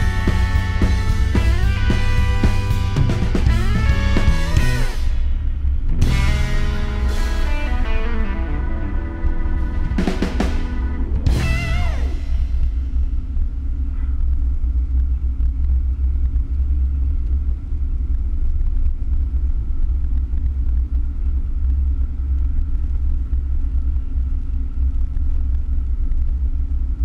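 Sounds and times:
engine and tyres rumbling: 0.0 - 7.5
faint steady whine: 0.0 - 27.0.

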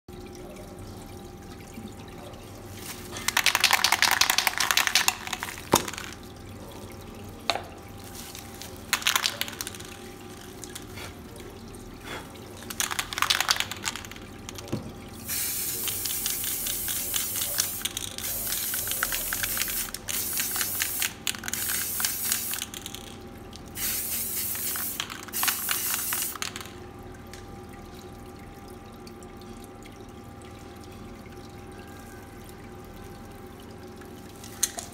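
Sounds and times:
aerosol spray can hissing: 15.3 - 22.6, 23.8 - 26.4.

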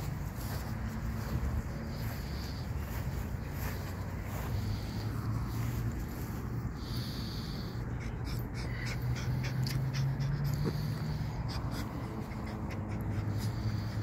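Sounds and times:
rustling in grass: 0.0 - 7.6
small dog panting: 0.0 - 14.0.

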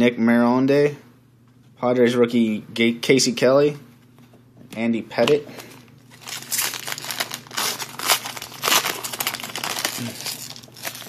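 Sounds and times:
wrapper torn and crumpled: 6.1 - 11.0.

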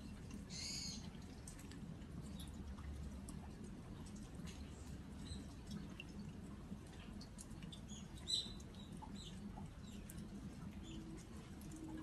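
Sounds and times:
rain dripping onto jars: 0.0 - 12.0
small birds chirping: 7.7 - 11.2.

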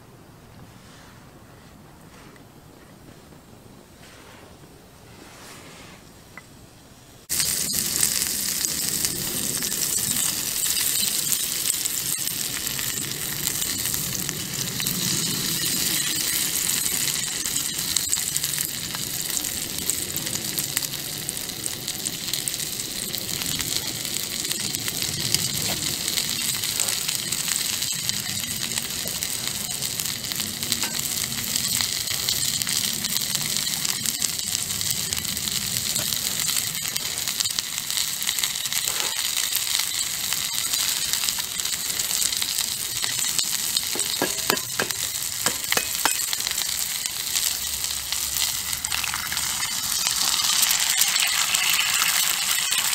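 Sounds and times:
sausages sizzling in oil: 7.1 - 52.9
small oil pops: 43.8 - 46.6.

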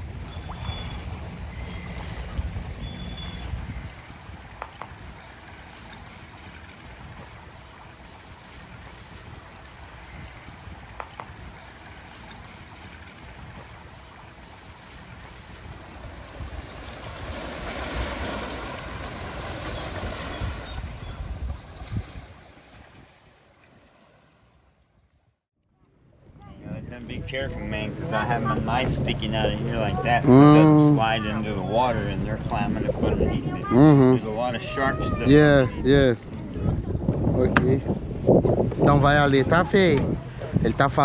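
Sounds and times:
small waves washing on shore: 0.0 - 25.0
wind: 0.0 - 41.0.

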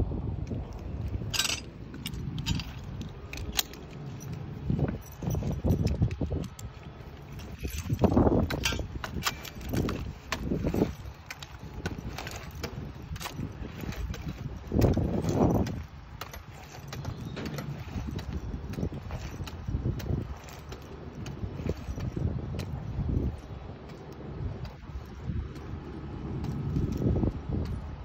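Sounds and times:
metal hardware clinking: 0.6 - 24.0.

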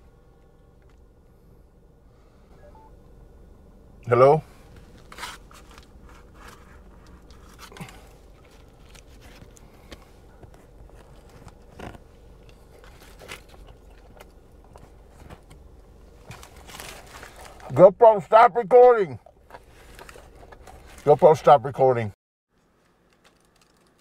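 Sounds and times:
man chewing a sandwich: 4.6 - 17.5
sandwich wrapper rustling: 4.8 - 9.9, 10.6 - 15.5, 16.1 - 17.8.

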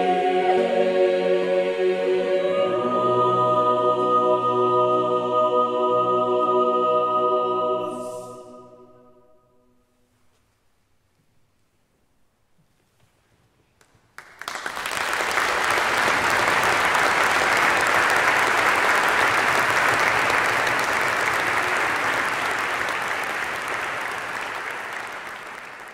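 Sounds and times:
audience applauding: 14.1 - 25.9.

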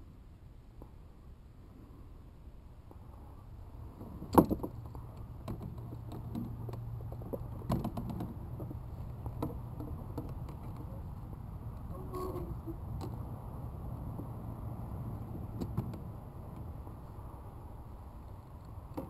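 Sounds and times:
knocks of gear in plastic kayak: 4.0 - 10.9
light clicks and rattles: 4.0 - 13.2.

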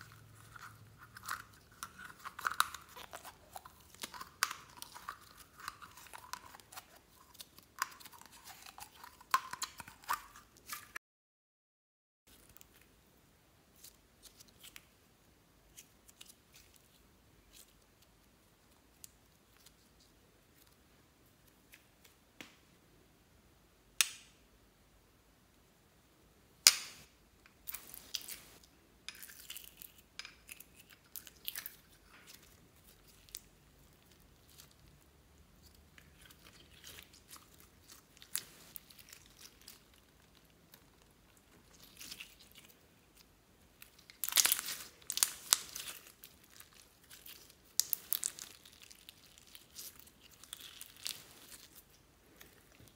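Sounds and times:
slime squelching with beads: 0.0 - 11.0, 27.6 - 52.9.

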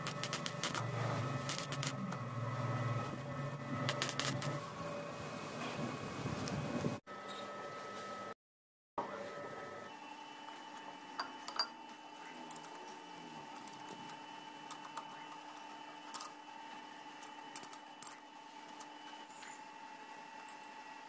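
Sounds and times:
steady machine hum: 0.0 - 8.4.

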